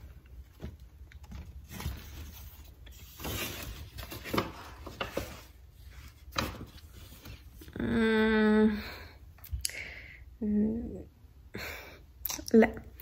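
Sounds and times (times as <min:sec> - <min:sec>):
paper bag rustling and crinkling: 0:00.0 - 0:07.6.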